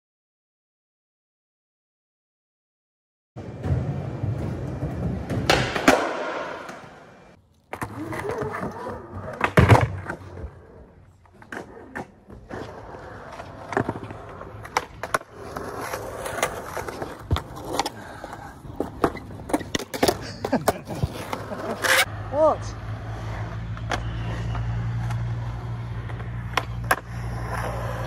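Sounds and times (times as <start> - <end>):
skateboard wheels rolling on concrete: 3.4 - 28.0
skateboard clacking on ground: 4.0 - 10.4, 11.2 - 22.1, 26.0 - 28.0.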